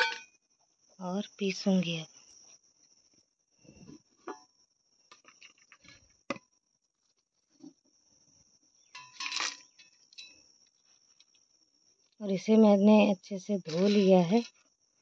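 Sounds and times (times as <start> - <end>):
metal clink: 8.9 - 10.4
dry lentils rattling into jar: 13.7 - 14.6.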